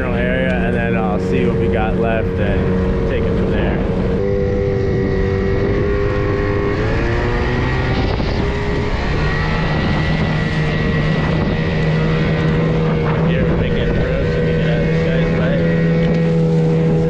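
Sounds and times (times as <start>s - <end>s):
small outboard motor running: 0.0s - 17.0s
wind: 0.0s - 17.0s.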